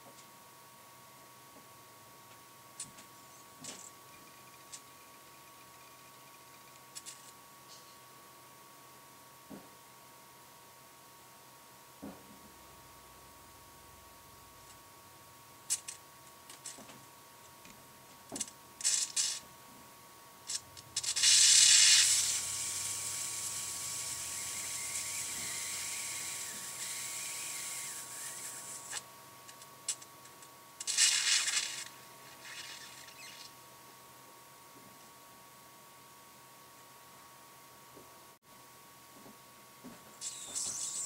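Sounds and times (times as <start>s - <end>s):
gas hissing through airlock: 20.5s - 29.0s, 30.8s - 33.3s.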